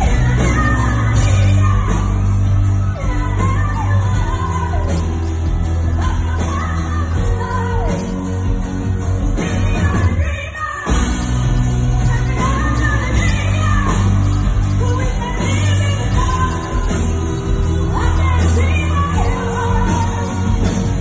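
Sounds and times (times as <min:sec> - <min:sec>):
boomy bass: 0:00.0 - 0:10.2, 0:10.9 - 0:21.0
lead singer: 0:00.0 - 0:21.0
live band playing: 0:00.0 - 0:21.0.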